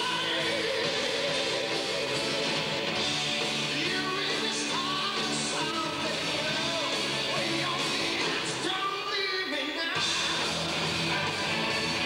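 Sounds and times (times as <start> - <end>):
man singing lead vocal: 0.0 - 2.5, 3.6 - 10.6
hard rock band playing live: 0.0 - 12.0.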